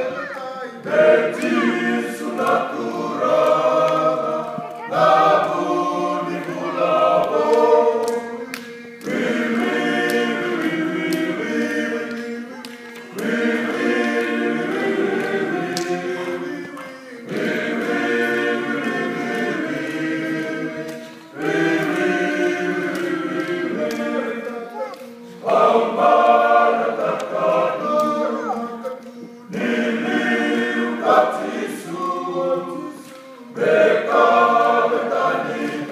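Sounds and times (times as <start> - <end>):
men singing unaccompanied as a choir: 0.0 - 35.9.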